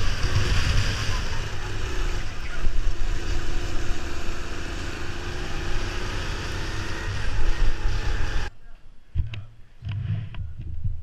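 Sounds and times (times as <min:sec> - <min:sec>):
wind buffeting microphone: 0:00.0 - 0:03.8
go-kart engine running: 0:00.0 - 0:08.5.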